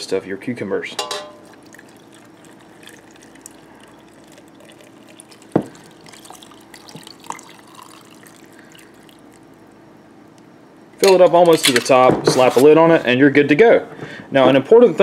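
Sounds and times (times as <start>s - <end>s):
liquid pouring into a jar: 1.3s - 9.8s.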